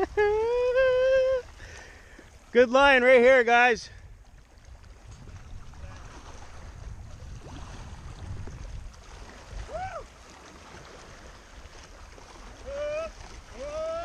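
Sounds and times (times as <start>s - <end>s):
waves lapping on rocks: 0.0s - 14.0s
wind buffeting microphone: 3.8s - 14.0s.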